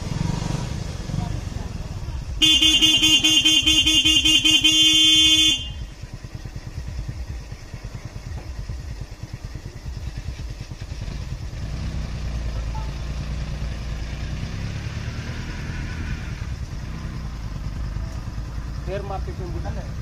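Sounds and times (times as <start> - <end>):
vehicle engine rumbling: 0.0 - 20.0
vehicle horn: 2.4 - 6.0, 12.7 - 13.0.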